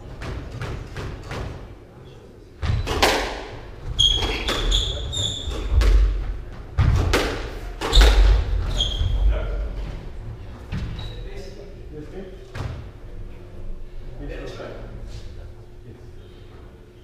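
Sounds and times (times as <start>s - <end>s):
squash ball hits: 2.6s - 9.3s
shoes squeaking on wooden floor: 3.8s - 6.6s, 7.8s - 10.0s.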